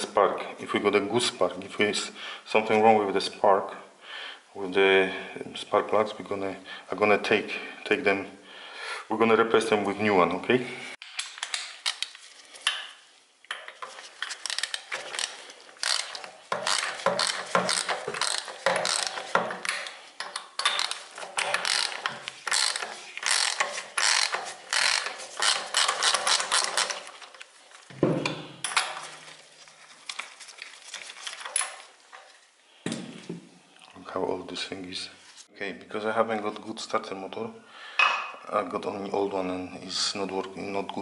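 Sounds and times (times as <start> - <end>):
ratchet wrench clicking: 14.4 - 19.9, 20.6 - 27.0.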